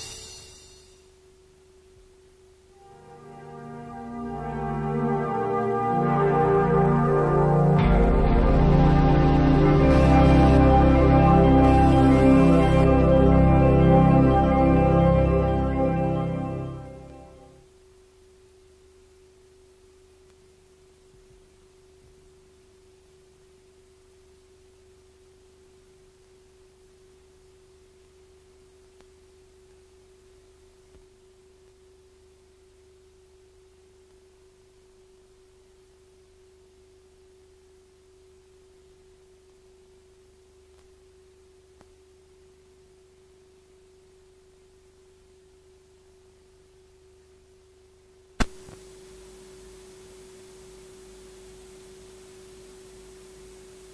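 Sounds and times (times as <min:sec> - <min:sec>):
steady electronic tone: 0:00.0 - 0:01.0, 0:02.8 - 0:17.6
low hum: 0:02.8 - 0:17.6.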